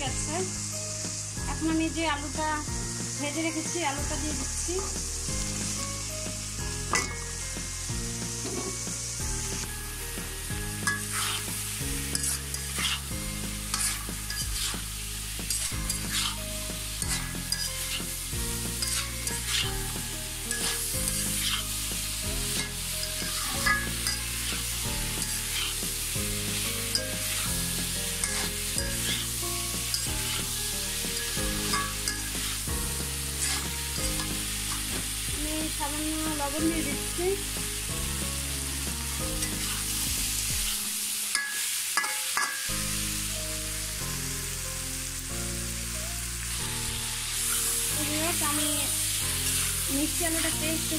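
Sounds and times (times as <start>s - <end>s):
food sizzling in oil: 0.0s - 50.9s
spatula scraping metal pan: 10.8s - 16.4s, 17.0s - 26.0s, 26.9s - 32.7s, 33.3s - 35.1s, 39.4s - 39.9s.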